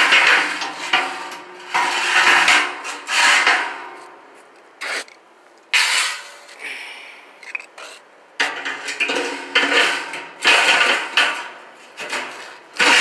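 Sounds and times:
metal grates clanking and scraping: 0.0s - 4.0s, 7.4s - 13.0s.

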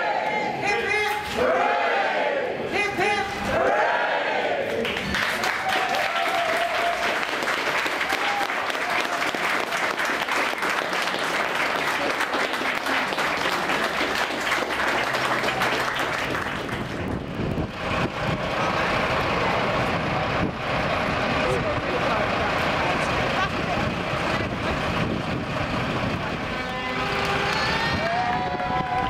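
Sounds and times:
crowd applauding: 4.7s - 17.7s, 26.6s - 29.0s.

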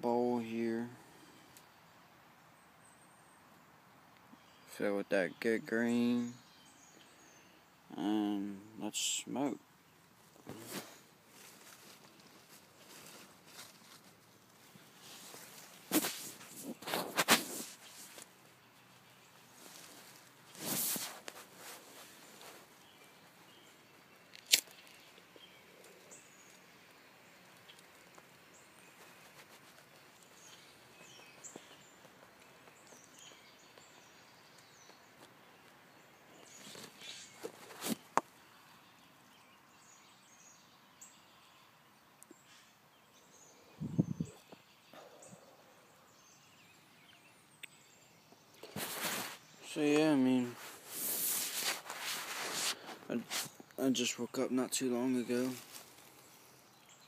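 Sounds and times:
breathy rustling noises: 10.3s - 18.4s, 19.4s - 23.7s, 48.6s - 49.8s, 50.4s - 53.7s
faint bird chirps: 21.6s - 57.0s.

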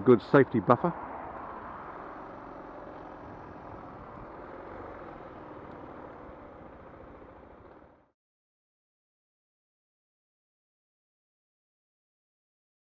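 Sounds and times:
road and wind noise: 0.0s - 8.1s
motorcycle running at low speed: 0.0s - 8.2s.

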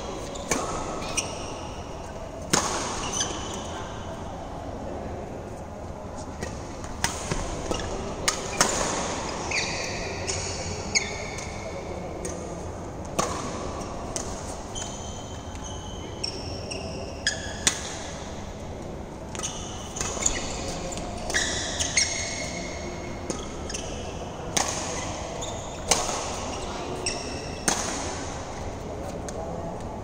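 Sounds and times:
shoes squeaking on court: 0.0s - 3.9s, 7.2s - 11.6s, 13.8s - 17.7s, 19.3s - 24.2s, 24.8s - 27.7s
rackets striking shuttlecock: 8.2s - 9.2s.

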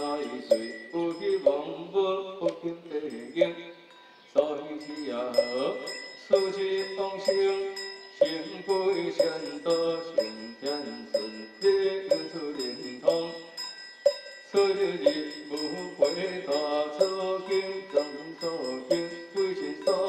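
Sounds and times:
high metallic ringing: 0.0s - 1.6s, 3.1s - 20.0s
priests chanting: 4.5s - 13.6s, 14.6s - 20.0s.

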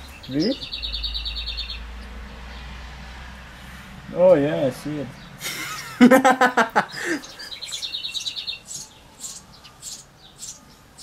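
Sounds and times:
songbird rapid high trill: 6.9s - 11.0s
songbird short high chirps: 7.2s - 11.0s.

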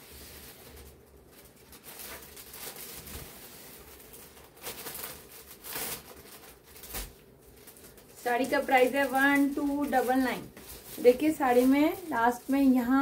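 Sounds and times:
fabric rustling and swishing: 7.6s - 13.0s.

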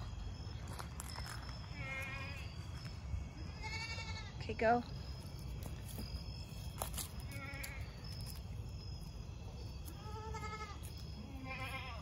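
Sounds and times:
goats bleating: 3.6s - 4.3s, 10.0s - 12.0s.

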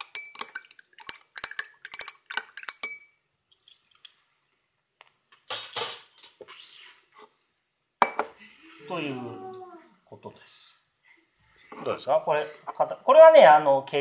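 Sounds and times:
glass rod clinking against beaker: 0.0s - 3.2s.

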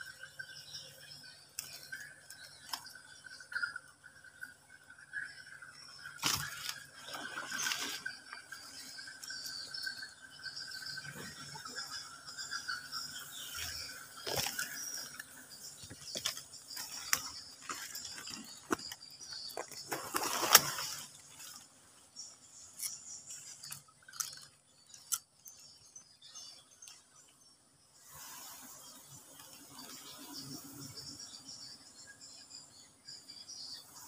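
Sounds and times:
twigs and leaves snapping: 6.2s - 6.8s, 14.2s - 14.8s, 15.8s - 21.6s, 22.8s - 25.6s.

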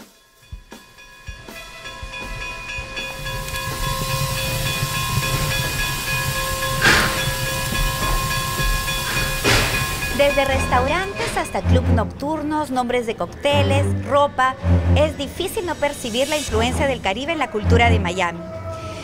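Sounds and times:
steam train rumble: 0.4s - 12.5s, 13.5s - 19.0s
steam hissing: 2.2s - 11.6s, 15.6s - 17.1s
burst of released steam: 3.5s - 10.2s.

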